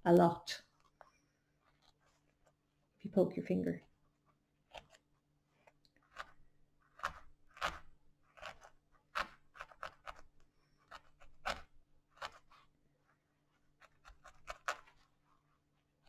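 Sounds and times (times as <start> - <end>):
felting needle stabbing wool: 4.6 - 12.8, 13.5 - 15.4.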